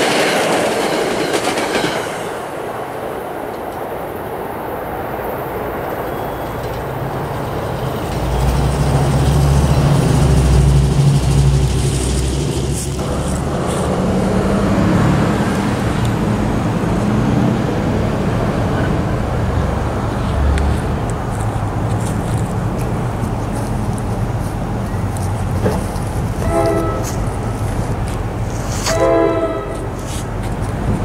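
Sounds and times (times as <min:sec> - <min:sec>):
road traffic noise: 0:02.2 - 0:31.0
heavy engine rumble: 0:06.3 - 0:31.0
steady engine drone: 0:07.3 - 0:31.0.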